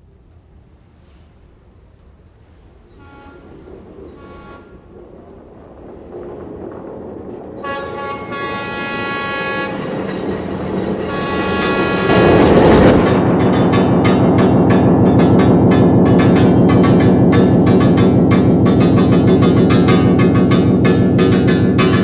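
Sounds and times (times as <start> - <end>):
locomotive rumble: 0.0 - 22.0
train horn blasts: 2.9 - 4.8, 7.6 - 13.4.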